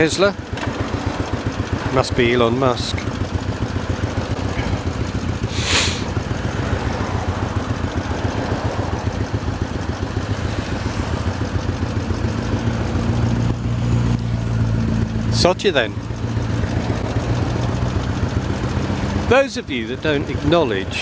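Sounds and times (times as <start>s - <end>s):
motorcycle engine idling: 0.0s - 21.0s
brief hiss: 5.5s - 6.1s.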